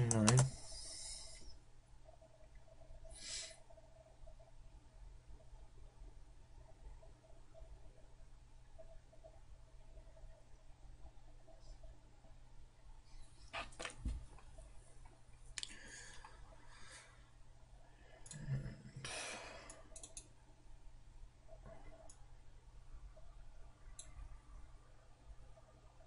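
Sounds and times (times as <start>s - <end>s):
computer mouse clicks: 0.0s - 0.6s, 19.7s - 20.4s, 21.6s - 22.2s, 23.9s - 24.2s.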